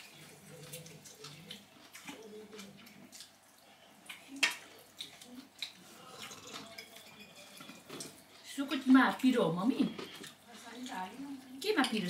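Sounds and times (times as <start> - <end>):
faint low voices: 0.0 - 8.6
soft wet chewing: 0.0 - 12.0
dishes and cutlery clicking: 6.2 - 8.2.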